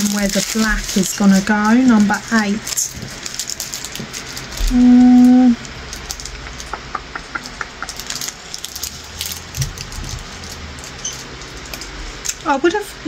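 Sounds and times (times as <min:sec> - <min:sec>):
woman humming mmm: 0:04.6 - 0:05.6.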